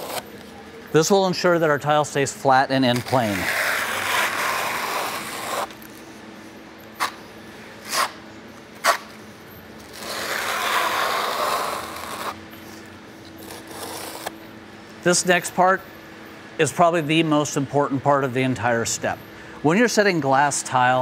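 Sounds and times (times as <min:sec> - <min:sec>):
trowel scraping wet mortar: 0:02.9 - 0:05.7, 0:09.9 - 0:12.4, 0:13.4 - 0:14.3.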